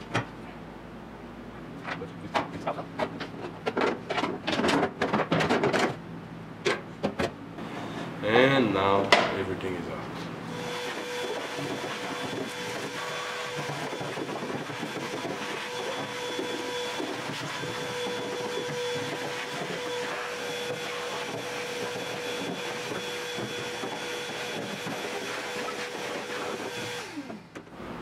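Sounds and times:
vacuum cleaner whine: 10.2s - 28.0s.

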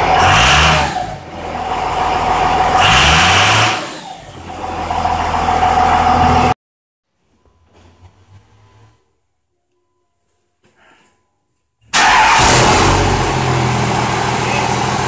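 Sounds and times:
diesel engine revving: 0.0s - 6.6s, 11.9s - 15.0s
high turbo whine: 12.0s - 15.0s.

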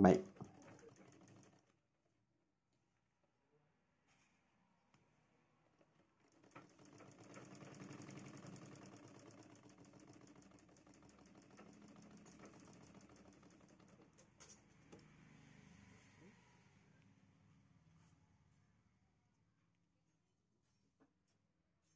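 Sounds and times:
sewing machine stitching: 0.0s - 1.8s, 5.5s - 15.3s.

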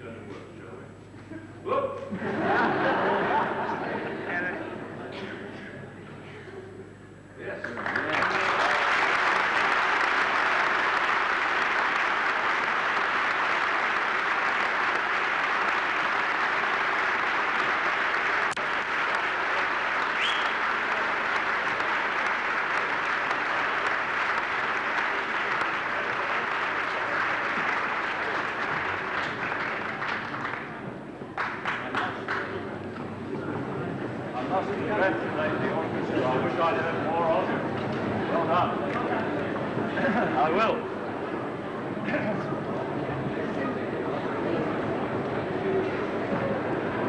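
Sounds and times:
audience applauding: 7.6s - 32.8s.

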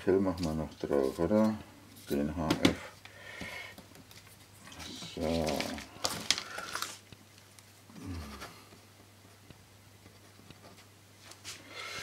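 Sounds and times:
low voice hum: 7.9s - 8.8s.

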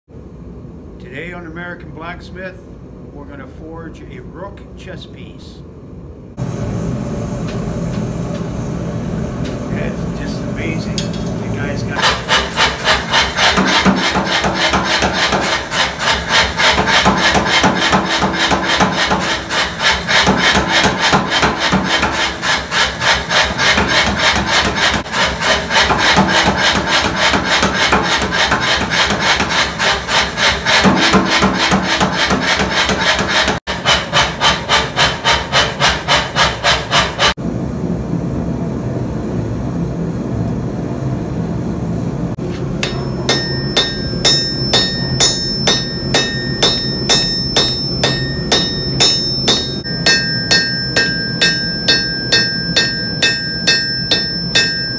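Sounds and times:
steady machine hum: 0.1s - 54.9s
power hammer striking steel: 12.0s - 37.4s, 42.8s - 54.9s.

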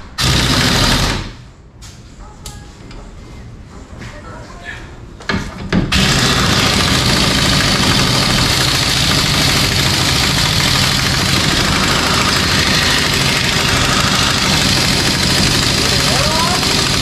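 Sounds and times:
pneumatic air tool buzzing: 0.2s - 1.4s, 5.9s - 17.0s.

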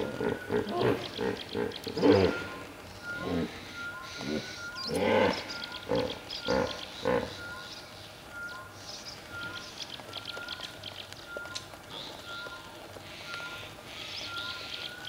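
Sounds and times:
hippopotamus grunting: 0.0s - 7.5s
small birds chirping: 0.0s - 15.0s.

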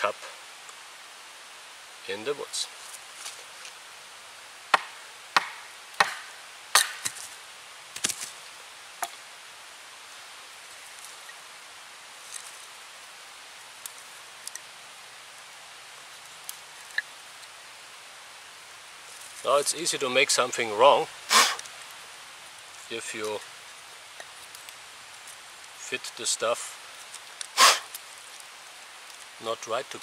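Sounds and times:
baton knocking on hatchet: 4.8s - 7.2s.

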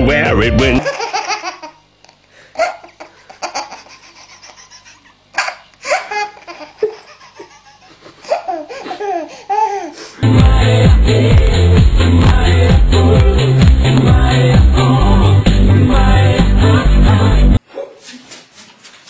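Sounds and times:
baby laughing: 0.8s - 1.8s, 2.6s - 10.0s.

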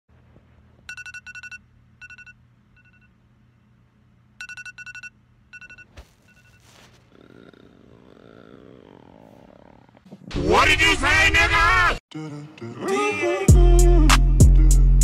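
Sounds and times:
phone alarm trilling beeps: 0.9s - 3.1s, 4.4s - 6.7s
bedding rustling: 5.9s - 7.5s.

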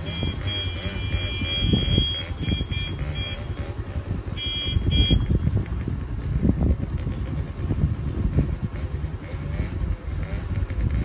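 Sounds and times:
car horn beeping: 0.0s - 5.5s.

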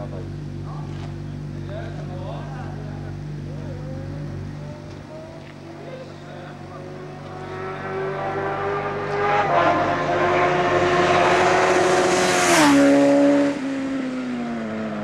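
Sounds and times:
motorcycle engine passing: 0.5s - 15.0s.

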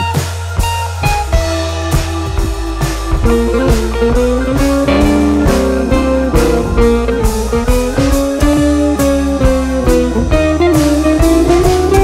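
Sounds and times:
drum kit steady beat: 0.0s - 12.0s
guitar melody with bending notes: 3.2s - 12.0s.

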